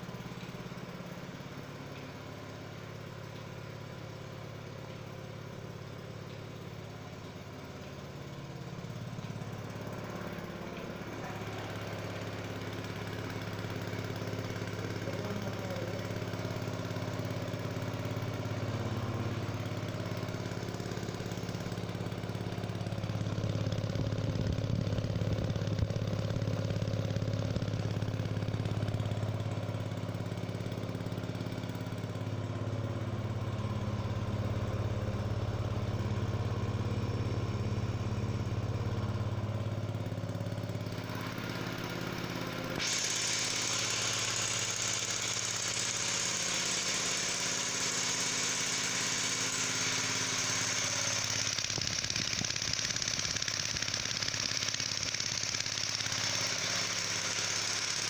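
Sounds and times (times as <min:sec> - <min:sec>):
petrol engine running: 0:00.0 - 0:58.0
steady hiss: 0:42.8 - 0:58.0.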